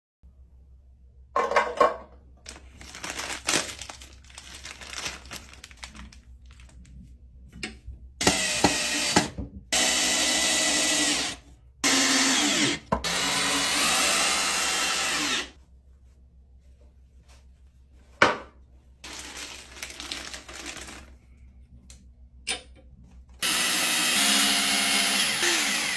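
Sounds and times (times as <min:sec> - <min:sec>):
cordless drill running: 0:08.2 - 0:15.5, 0:23.4 - 0:25.9.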